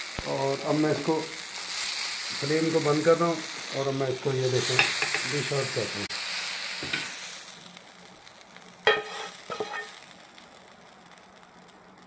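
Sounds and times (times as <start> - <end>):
pan sizzling: 0.0 - 12.0
metal spatula scraping pan: 8.9 - 10.0
spatula clanking: 8.9 - 10.0.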